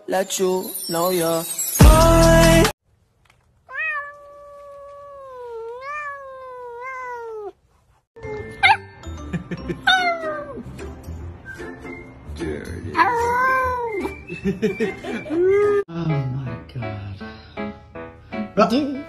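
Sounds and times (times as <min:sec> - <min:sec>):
cat meowing: 0:03.7 - 0:07.6, 0:09.9 - 0:10.6, 0:13.0 - 0:14.0
puppy crying: 0:03.7 - 0:07.6, 0:08.2 - 0:09.0, 0:09.8 - 0:10.6, 0:13.0 - 0:14.3.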